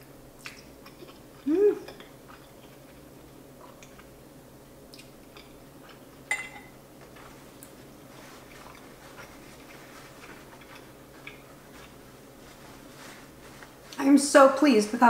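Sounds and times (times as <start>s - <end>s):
chewing pasta: 0.4s - 4.2s, 4.8s - 6.3s, 7.0s - 14.0s
metal fork clinking on plate: 6.3s - 6.7s.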